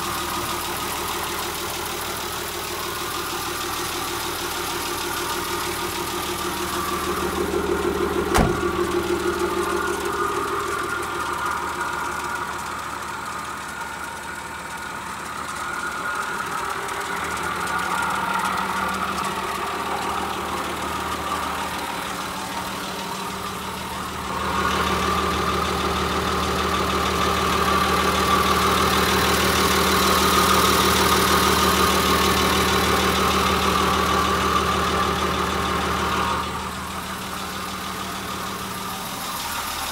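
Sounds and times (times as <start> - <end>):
diesel engine idling: 0.0 - 39.9.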